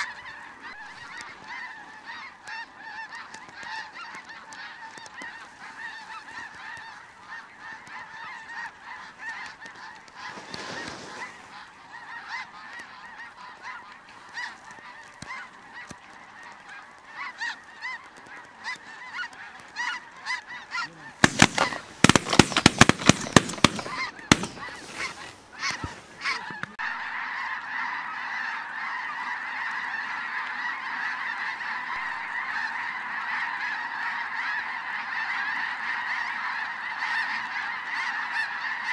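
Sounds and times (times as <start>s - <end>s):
snow geese honking: 0.0s - 38.9s
shotgun blasts: 21.2s - 24.9s.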